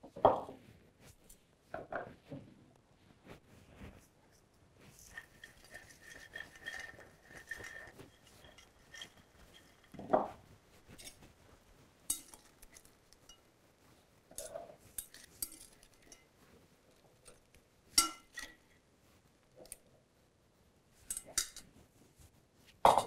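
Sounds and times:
metal tongs clinking on ceramic bowl: 0:05.1 - 0:10.1, 0:12.1 - 0:13.4, 0:14.4 - 0:16.3, 0:18.0 - 0:18.6, 0:21.0 - 0:21.6.

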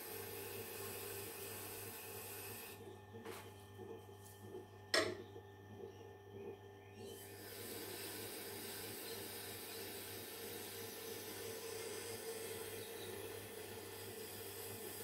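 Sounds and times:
sharpening machine humming: 0:07.2 - 0:15.0.

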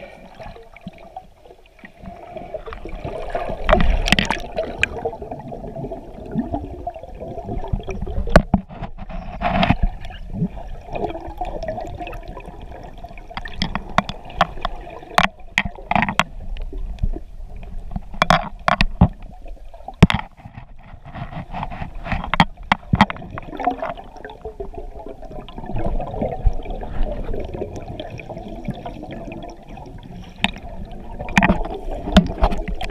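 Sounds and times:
sharp clicks and knocks: 0:13.3 - 0:16.7, 0:17.9 - 0:19.3, 0:20.0 - 0:23.5, 0:31.2 - 0:32.9.

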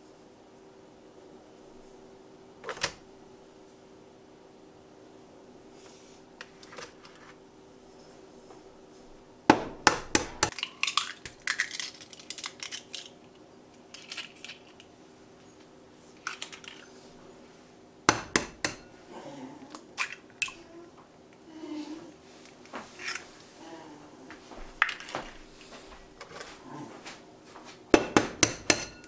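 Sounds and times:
faint steady hum: 0:00.0 - 0:29.0
egg cracking: 0:09.9 - 0:14.9, 0:16.2 - 0:16.9, 0:19.7 - 0:20.6, 0:24.8 - 0:25.3.

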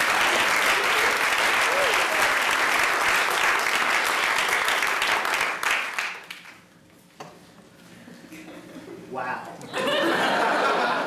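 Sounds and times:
audience applauding: 0:00.0 - 0:06.6.

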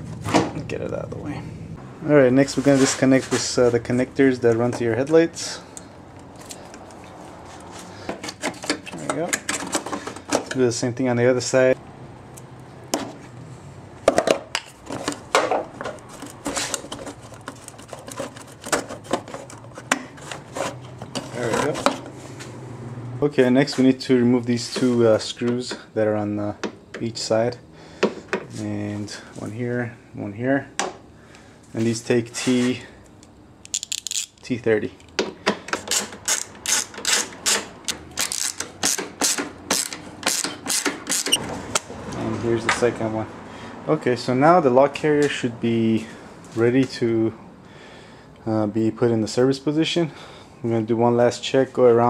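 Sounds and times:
hand ratchet clicking: 0:33.6 - 0:34.4, 0:35.7 - 0:41.4.

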